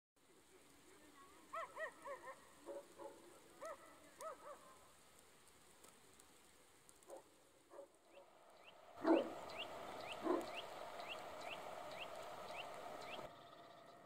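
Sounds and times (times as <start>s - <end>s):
dog barking: 1.5s - 4.8s, 7.0s - 8.2s, 9.0s - 9.4s, 10.2s - 10.6s.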